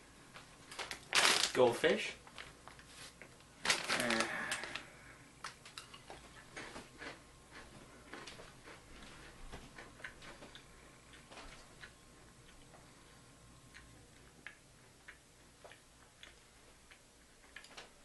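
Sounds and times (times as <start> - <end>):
crackers being chewed: 0.3 - 1.6, 2.2 - 18.0
foil snack bag crinkling: 0.6 - 2.8, 3.6 - 4.9.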